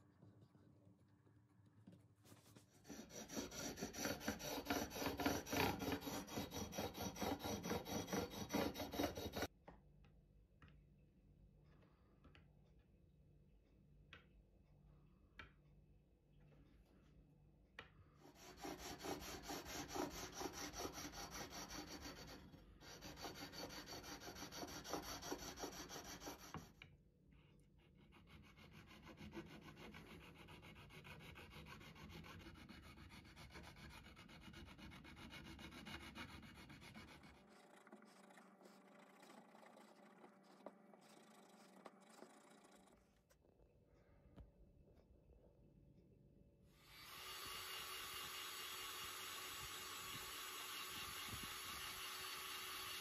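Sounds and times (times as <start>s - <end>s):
file rubbing on metal frets: 2.8s - 9.5s, 18.2s - 26.8s, 28.0s - 43.0s.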